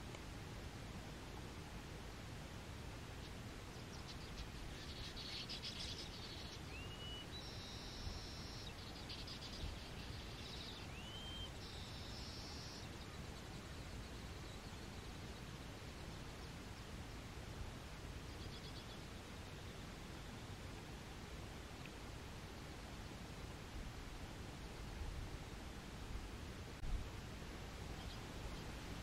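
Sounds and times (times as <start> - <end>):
steady hiss: 0.0 - 29.0.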